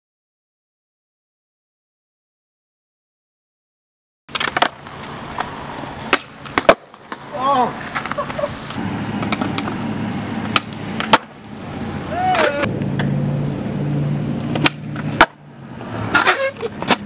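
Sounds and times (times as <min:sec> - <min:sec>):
skateboard clacks: 0:04.3 - 0:09.8, 0:10.4 - 0:11.4, 0:14.5 - 0:15.4, 0:16.0 - 0:17.0
skateboard wheels rolling on concrete: 0:04.3 - 0:17.0
person shouting: 0:07.3 - 0:07.8, 0:12.0 - 0:12.7.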